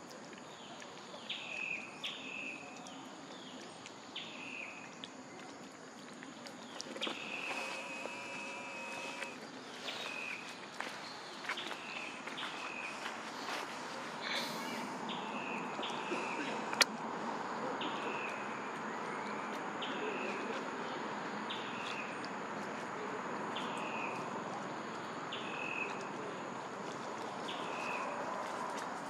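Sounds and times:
hiss of forest insects: 11.8s - 15.1s.

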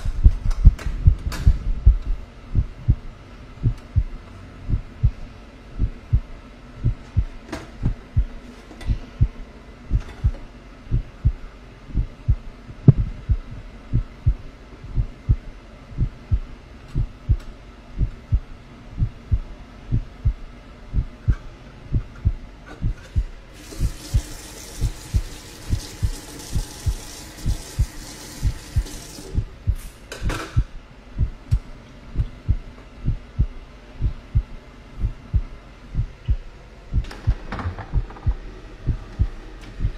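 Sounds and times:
heartbeat low thumps: 0.0s - 39.9s
tap running water into sink: 23.6s - 29.3s.

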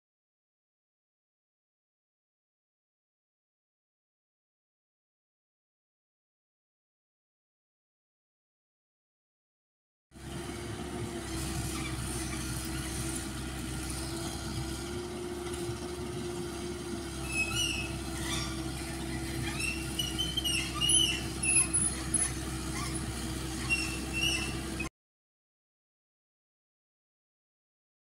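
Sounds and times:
excavator engine humming: 10.2s - 24.9s
short high squeals: 17.1s - 24.9s.

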